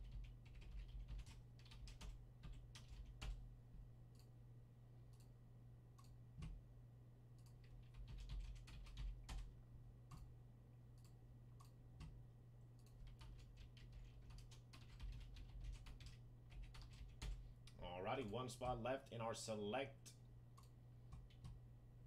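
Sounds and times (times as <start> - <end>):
low steady hum: 0.0 - 22.0
keyboard typing clicks: 6.0 - 6.6, 20.6 - 21.6.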